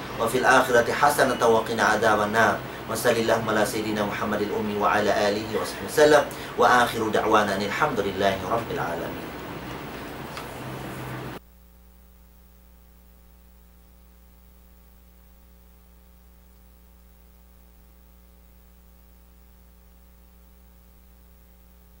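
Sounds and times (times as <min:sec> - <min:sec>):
faint hiss: 0:00.0 - 0:11.4
electrical mains hum: 0:00.0 - 0:22.0.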